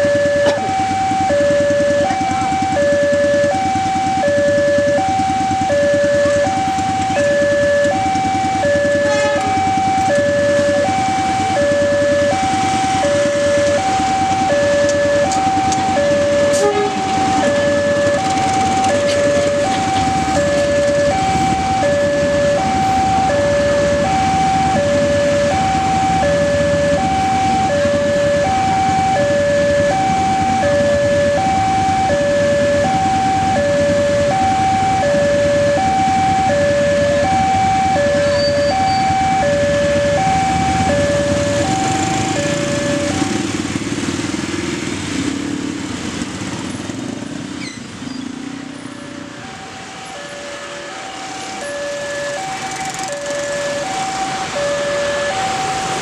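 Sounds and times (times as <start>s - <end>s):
train rumbling past: 0.0s - 35.6s
level crossing alarm ding-dong: 4.2s - 43.5s.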